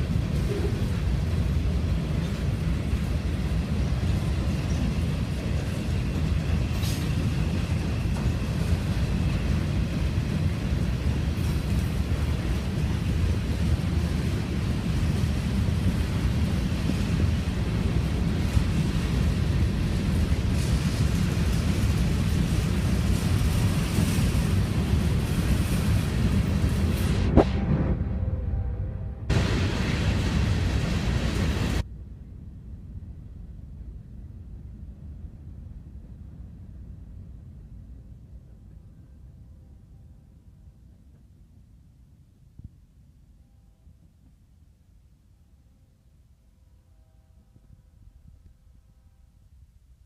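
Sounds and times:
freight train wheels rumbling: 0.0 - 39.6.

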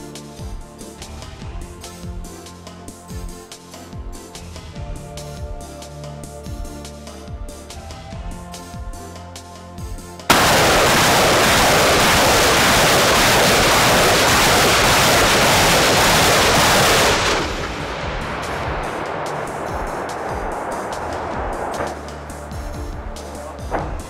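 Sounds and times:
background music: 0.0 - 24.0
rocket salvo launch rush: 10.3 - 23.8.

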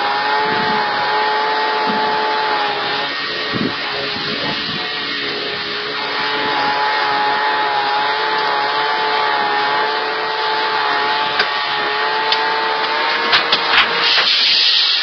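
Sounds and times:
air compressor running: 0.0 - 15.0
air hissing: 13.6 - 15.0.

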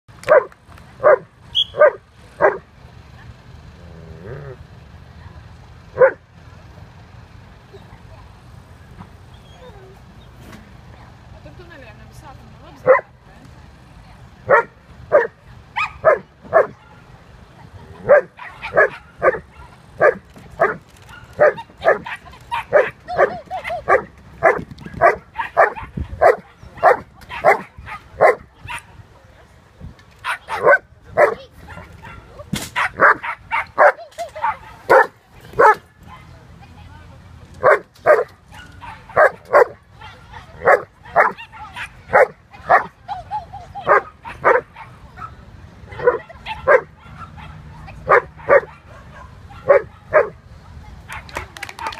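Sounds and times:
dog barking: 1.8 - 2.6, 6.0 - 6.2, 14.5 - 16.9, 18.1 - 23.3, 23.9 - 28.8, 30.2 - 36.2, 37.6 - 42.9, 43.9 - 50.4.

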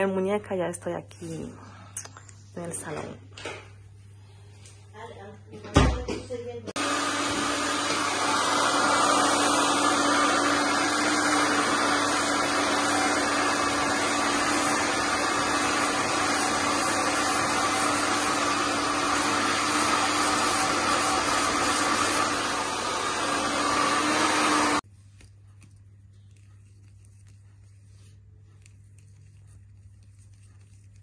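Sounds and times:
hair dryer running: 6.7 - 24.8.

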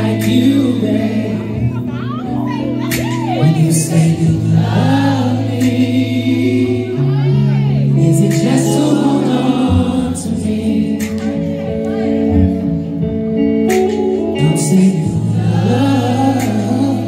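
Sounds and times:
man singing into microphone: 0.0 - 12.6, 14.1 - 17.0
sustained bass notes: 0.0 - 17.0.

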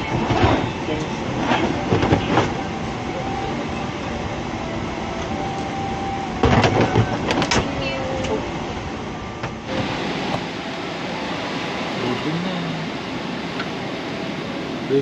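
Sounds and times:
cabin air system hum: 0.0 - 15.0
luggage bins knocking shut: 6.4 - 7.7.

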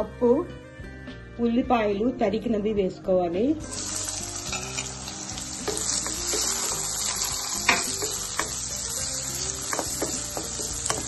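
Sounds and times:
onions sizzling in hot oil: 3.6 - 11.0
spatula scraping and knocking pan: 5.6 - 8.8, 9.5 - 11.0.

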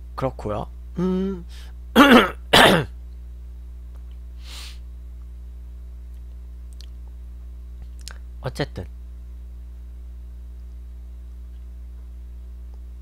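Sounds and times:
low electrical hum: 0.0 - 13.0
short breath: 4.4 - 4.8.

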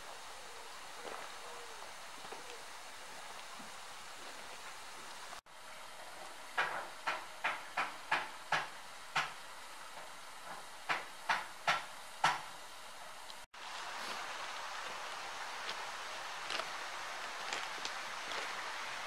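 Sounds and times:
steam hissing: 0.0 - 5.4, 13.5 - 19.0
footsteps on track ballast: 15.6 - 16.7, 17.3 - 18.8.

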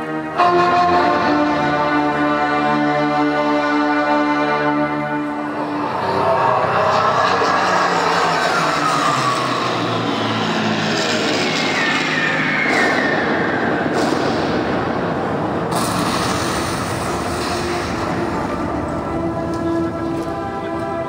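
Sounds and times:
rumbling vehicle over loudspeakers: 0.0 - 21.0
train sounds: 0.0 - 21.0
falling whistling tones: 9.1 - 14.5.

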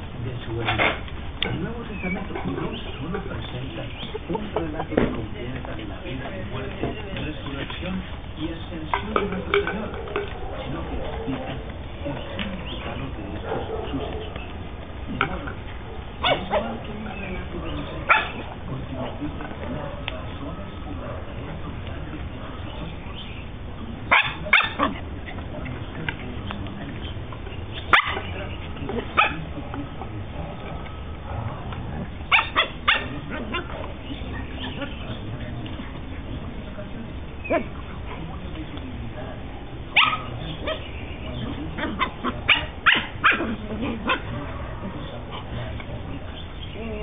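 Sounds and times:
dogs yipping and barking: 1.9 - 5.0, 9.4 - 25.6, 27.1 - 36.2, 39.6 - 47.0
dog barking: 10.0 - 11.7, 13.4 - 14.4, 15.8 - 16.8, 18.0 - 18.5, 19.7 - 21.5, 24.1 - 25.0, 27.9 - 28.4, 29.1 - 29.8, 30.4 - 34.0, 39.9 - 40.9, 41.7 - 45.8.

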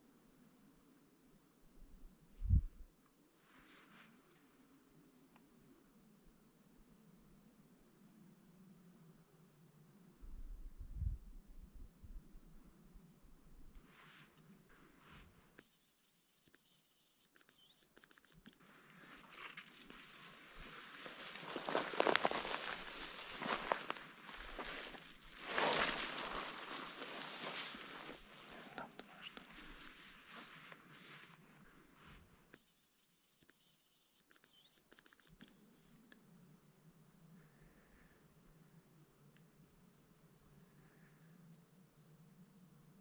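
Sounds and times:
high decoy whistle: 15.6 - 18.5, 32.5 - 35.4
short whistle chirps: 15.6 - 18.5, 32.6 - 35.5
faint rustling: 18.6 - 32.4.

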